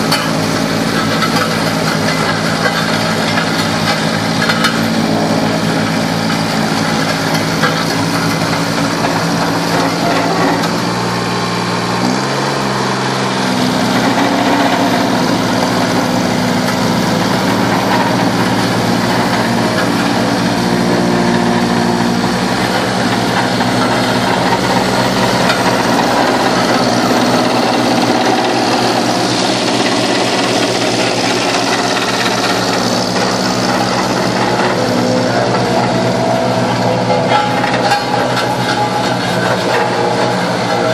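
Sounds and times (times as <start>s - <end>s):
small diesel engine running: 0.0s - 40.9s.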